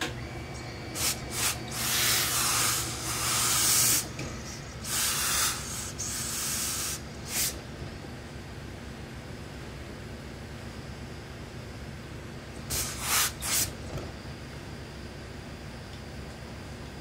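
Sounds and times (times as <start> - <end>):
steam iron hissing: 0.9 - 7.6, 12.7 - 13.7.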